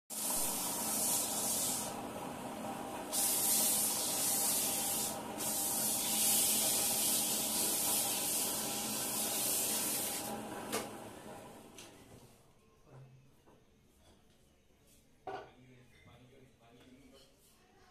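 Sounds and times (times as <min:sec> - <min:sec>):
machine hissing: 0:00.1 - 0:02.0, 0:03.0 - 0:10.4.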